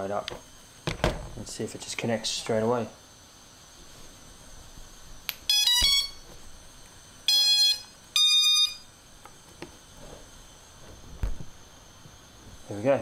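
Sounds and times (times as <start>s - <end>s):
long beeps: 5.5s - 6.3s, 7.3s - 8.9s.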